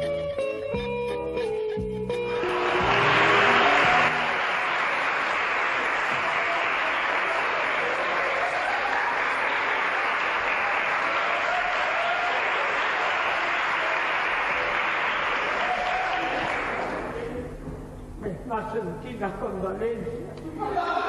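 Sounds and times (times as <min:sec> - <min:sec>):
theme music: 0:01.8 - 0:06.1
audience applauding: 0:02.3 - 0:17.5.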